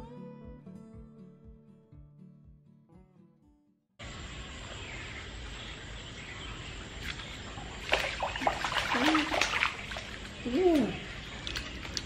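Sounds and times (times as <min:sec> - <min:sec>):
outdoor background: 0:00.0 - 0:12.0
fish splashing in water: 0:06.8 - 0:12.0.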